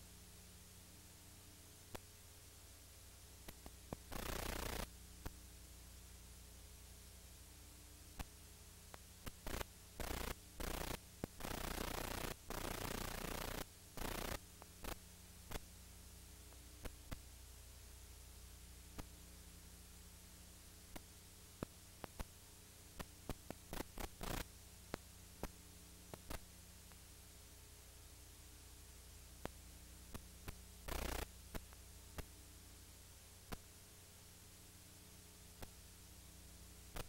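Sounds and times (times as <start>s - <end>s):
crackling static bursts: 0.0s - 0.9s, 1.7s - 7.5s, 8.1s - 37.0s
mains hum and tape hiss: 0.0s - 37.0s
scattered clicks: 3.4s - 5.4s, 8.9s - 15.7s, 16.5s - 17.2s, 20.9s - 22.4s, 23.0s - 27.0s, 29.4s - 32.3s.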